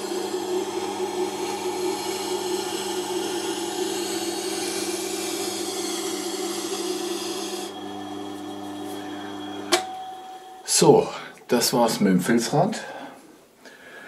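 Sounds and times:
blade rubbing on felt wheel: 0.0 - 7.8
sharpening machine motor humming: 0.0 - 10.8.

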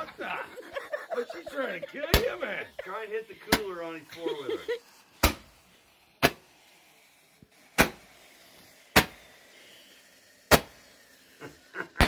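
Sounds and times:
roman candle firing pops: 3.5 - 3.7, 5.2 - 5.5, 6.2 - 6.4, 7.8 - 8.1, 8.9 - 9.2, 10.5 - 10.8.

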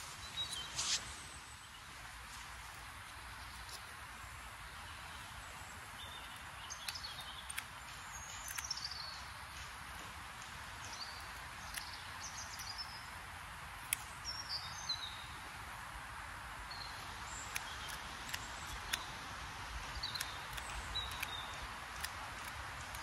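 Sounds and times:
outdoor hiss: 0.0 - 7.0
small birds chirping: 0.0 - 23.0
sharp clicks: 6.0 - 14.8, 16.8 - 23.0.

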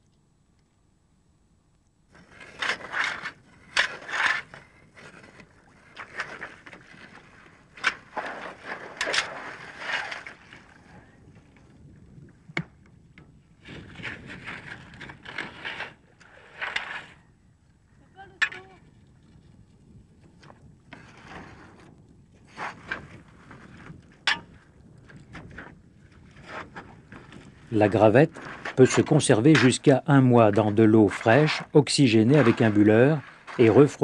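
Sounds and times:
fork scraping through gravel: 2.2 - 5.3, 7.9 - 10.4, 13.8 - 17.2, 30.6 - 34.0.

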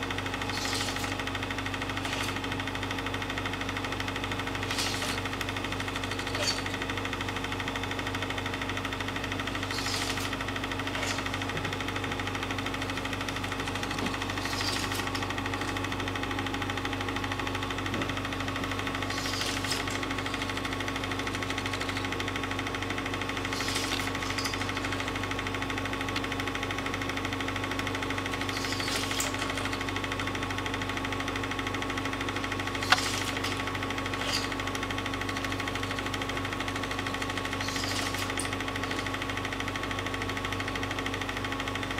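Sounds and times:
film projector running: 0.0 - 41.9.

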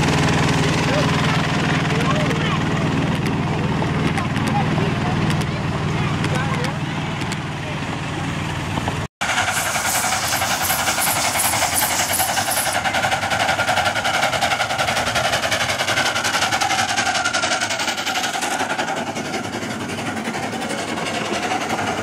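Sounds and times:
miniature train wheels clattering: 9.2 - 22.0.

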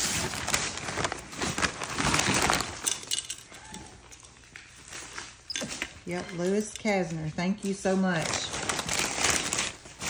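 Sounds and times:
mail packaging crinkling and tearing: 0.0 - 3.7, 7.8 - 10.0.

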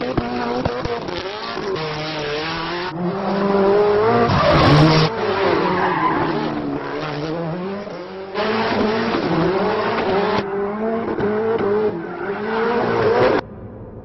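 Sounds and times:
car engine revving: 0.0 - 14.0
tyres squealing on pavement: 4.2 - 6.6.

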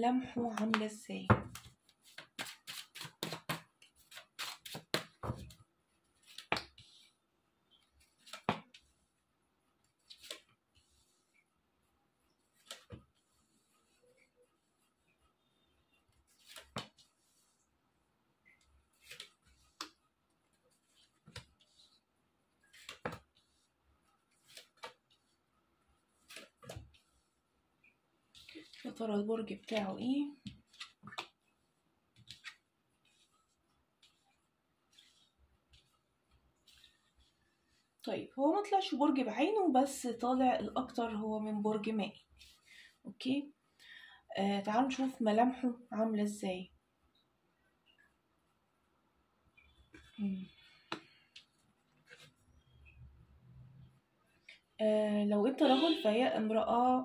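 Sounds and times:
cards being shuffled: 1.5 - 5.6, 7.8 - 8.8, 9.9 - 10.6, 12.5 - 13.2, 16.3 - 17.1, 18.9 - 20.0, 22.6 - 23.6, 24.3 - 25.3, 26.1 - 27.2, 30.4 - 31.4, 32.1 - 33.4, 50.9 - 52.4.

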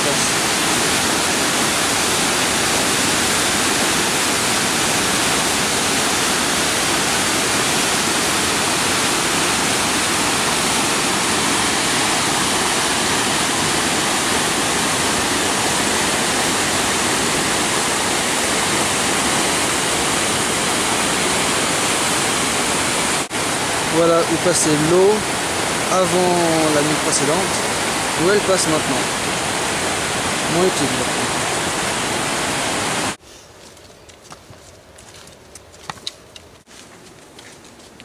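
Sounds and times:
river torrent roaring: 0.0 - 33.2.

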